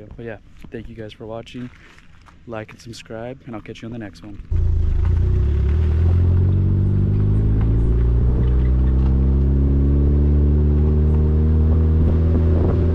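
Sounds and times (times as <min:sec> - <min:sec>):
car engine hum: 0:04.4 - 0:12.9.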